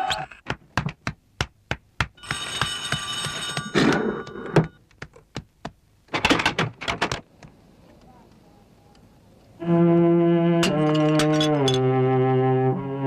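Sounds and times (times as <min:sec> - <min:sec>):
knocks: 0:00.4 - 0:07.5
electric doorbell ringing: 0:02.2 - 0:04.8.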